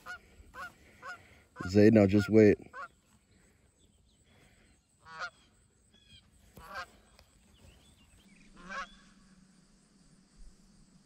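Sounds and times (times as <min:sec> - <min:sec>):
goose honking: 0:00.0 - 0:03.0, 0:05.0 - 0:07.0, 0:08.5 - 0:09.2.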